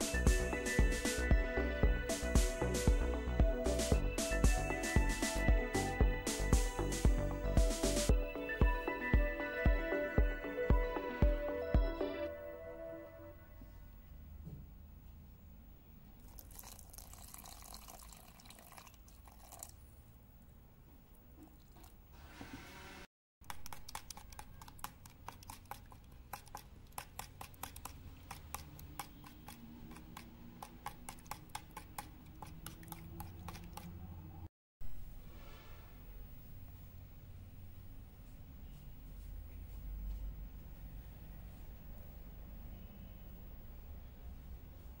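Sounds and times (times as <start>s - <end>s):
liquid pouring hiss: 16.2s - 19.8s
liquid sloshing: 16.2s - 19.9s, 23.6s - 34.0s.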